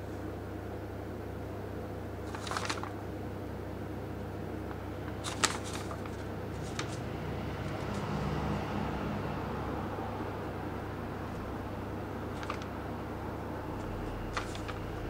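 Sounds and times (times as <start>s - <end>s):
steady low hum: 0.0s - 15.0s
paper rustling: 2.2s - 3.0s, 5.1s - 8.2s, 12.3s - 12.8s, 13.8s - 15.0s.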